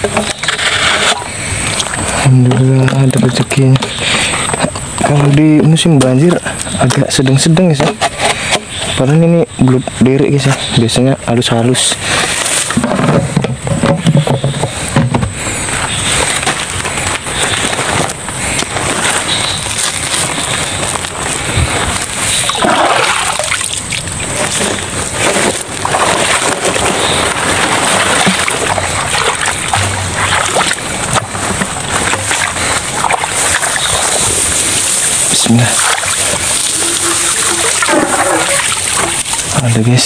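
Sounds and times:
grass rustling: 0.0 - 40.0
footsteps splashing through water: 15.8 - 39.6.

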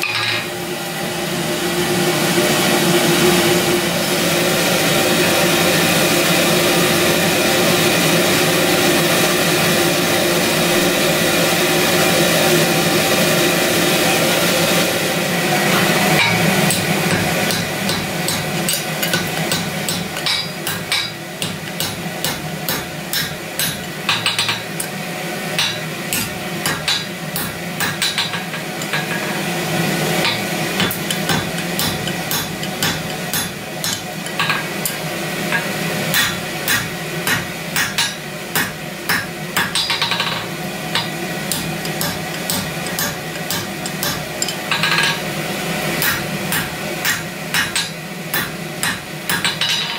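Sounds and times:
steel bar knocking on anvil: 15.7 - 25.0, 25.6 - 29.4, 30.2 - 45.2, 46.0 - 49.9.

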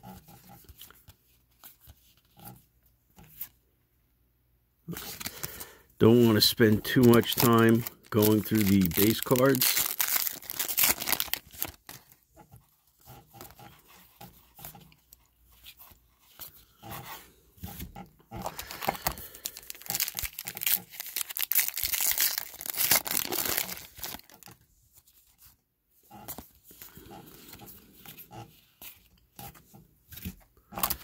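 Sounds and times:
cards rustling: 0.1 - 3.6, 4.9 - 12.2, 12.9 - 25.6, 26.2 - 31.0
foil wrapper crinkling: 4.9 - 12.2, 18.4 - 24.6.

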